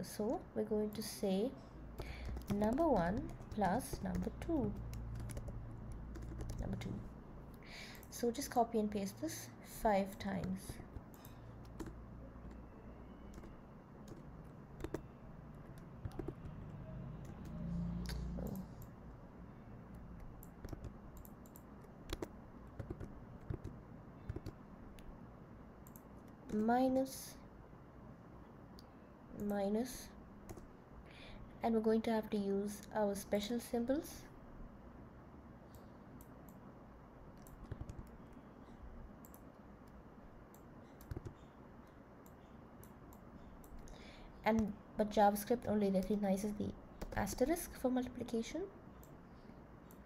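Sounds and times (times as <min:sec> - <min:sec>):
faint keyboard typing: 0:01.9 - 0:09.3, 0:09.9 - 0:19.0, 0:19.9 - 0:25.2, 0:25.8 - 0:27.1, 0:28.8 - 0:29.9, 0:30.5 - 0:30.7, 0:37.3 - 0:49.2
keyboard keystrokes: 0:02.2 - 0:07.0, 0:10.3 - 0:12.6, 0:13.3 - 0:16.6, 0:20.2 - 0:25.1, 0:37.4 - 0:38.2, 0:40.5 - 0:41.4.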